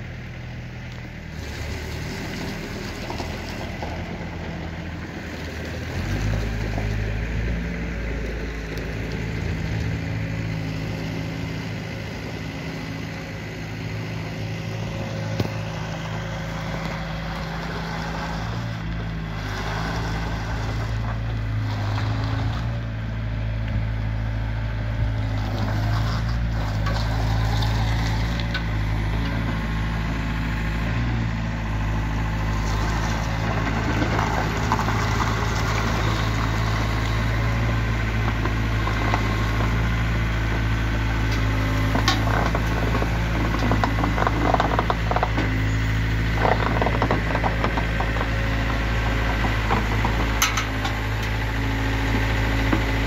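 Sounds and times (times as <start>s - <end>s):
diesel engine running: 0.0s - 53.0s.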